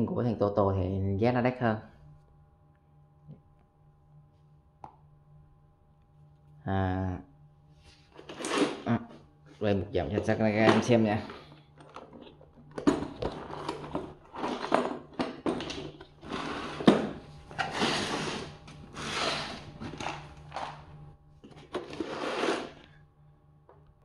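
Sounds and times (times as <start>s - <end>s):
plastic toolbox clatters and clicks: 11.8s - 16.0s.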